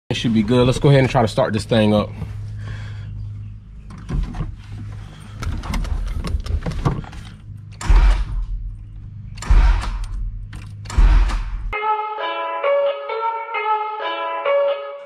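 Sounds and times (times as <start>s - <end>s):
steady low hum: 0.1s - 11.8s
car engine start attempts: 3.8s - 8.7s, 9.3s - 11.7s.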